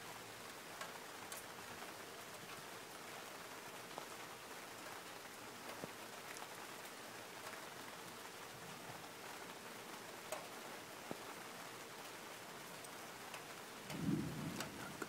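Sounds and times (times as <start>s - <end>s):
steady rain: 0.0s - 15.0s
raindrops ticking: 10.2s - 15.0s.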